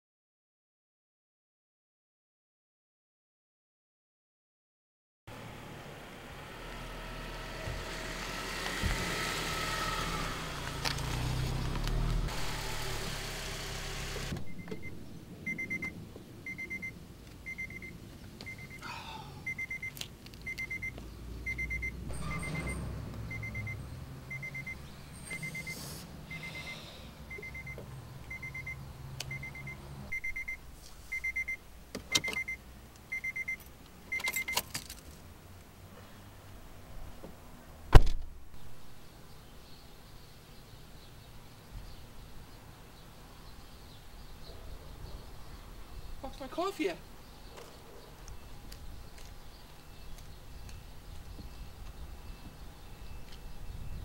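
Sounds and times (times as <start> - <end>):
street traffic noise: 5.3 - 54.0
car warning chime beeps: 14.4 - 34.7, 52.2 - 54.0.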